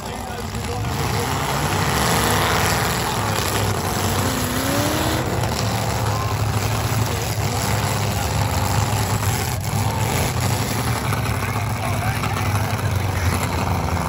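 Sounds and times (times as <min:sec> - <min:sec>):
car engines rumbling: 0:00.0 - 0:14.0.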